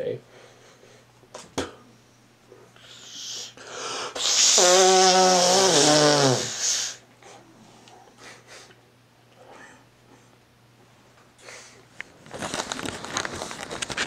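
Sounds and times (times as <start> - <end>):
person breathing in: 2.8 - 4.2.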